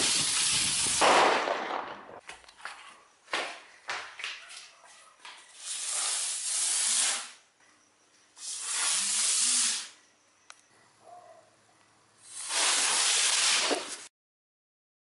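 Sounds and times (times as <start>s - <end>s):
fireworks hissing rush: 0.0s - 1.5s, 5.5s - 7.4s, 8.4s - 10.0s, 12.2s - 14.1s
firework pops: 0.0s - 2.2s, 12.3s - 14.1s.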